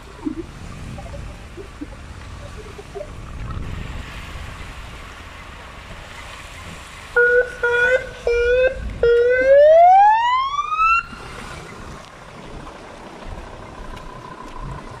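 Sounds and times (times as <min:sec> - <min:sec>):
police siren wailing: 0:07.1 - 0:11.4.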